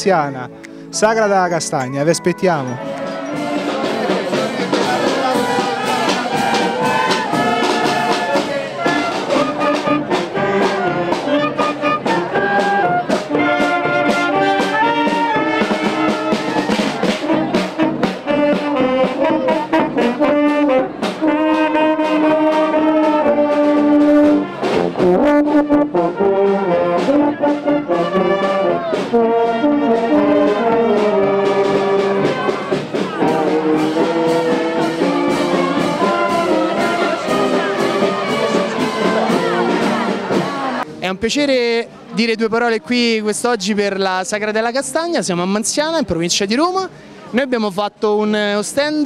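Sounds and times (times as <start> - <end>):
clarinets and brass melody: 0.0 - 41.2
bass drum and snare drum beat: 3.0 - 40.9.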